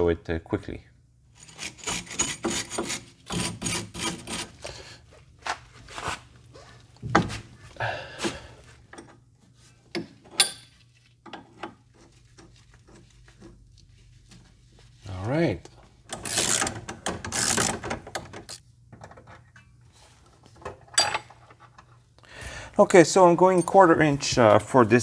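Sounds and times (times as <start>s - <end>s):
tools clicking and scraping on metal: 9.9s - 13.9s, 15.6s - 19.7s, 20.6s - 22.0s.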